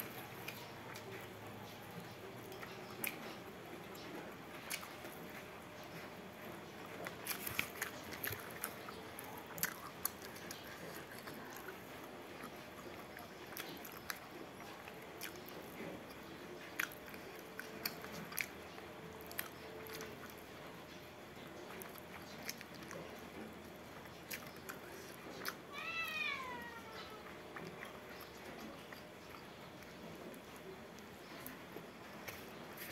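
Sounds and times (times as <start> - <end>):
close-miked chewing: 0.0 - 32.9
wet mouth clicks and smacks: 7.0 - 11.7.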